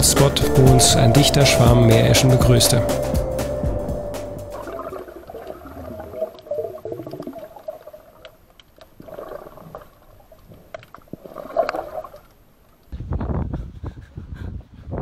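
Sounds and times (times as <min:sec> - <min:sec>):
warbling tone with falling glides: 0:00.0 - 0:07.2
underwater gurgling and bubbling: 0:04.6 - 0:08.2, 0:09.0 - 0:10.3.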